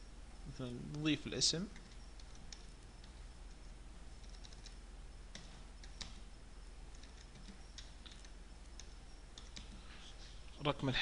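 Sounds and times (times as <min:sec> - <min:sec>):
keyboard typing: 0:01.7 - 0:06.3, 0:06.9 - 0:09.9.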